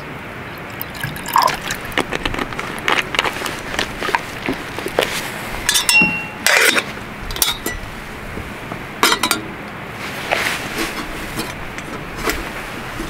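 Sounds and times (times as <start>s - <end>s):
metal kettle clinking: 5.7s - 7.8s, 9.0s - 9.5s.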